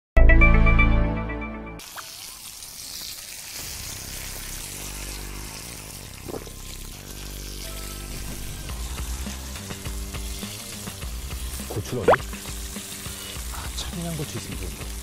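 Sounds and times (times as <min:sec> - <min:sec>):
music jingle: 0:00.2 - 0:01.8
food sizzling in a pan: 0:01.8 - 0:15.0
soft background music: 0:04.9 - 0:15.0.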